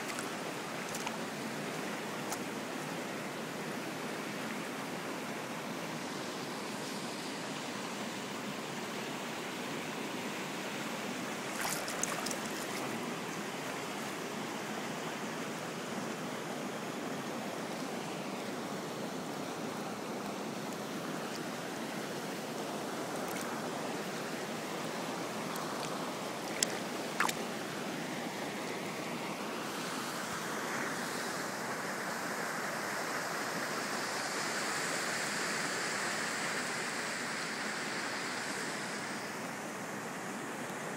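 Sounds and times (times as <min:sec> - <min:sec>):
stream rushing over rocks: 0:00.0 - 0:40.9.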